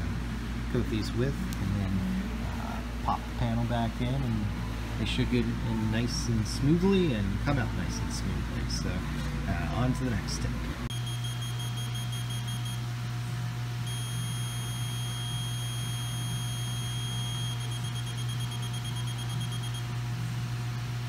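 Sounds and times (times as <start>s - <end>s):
constant low hum: 0.0s - 21.0s
high steady electronic beep: 10.9s - 12.8s, 13.9s - 19.9s.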